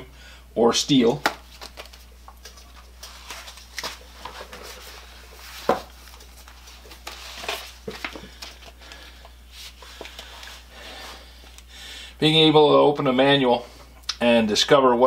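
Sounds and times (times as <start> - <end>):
low steady hum: 0.0 - 15.0
rustling of paper and plastic: 1.4 - 9.0
books knocking on wooden shelf: 5.6 - 5.9.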